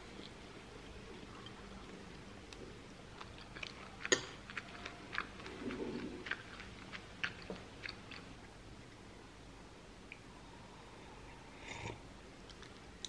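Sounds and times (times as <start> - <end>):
chewing crunchy muesli: 1.1 - 8.5.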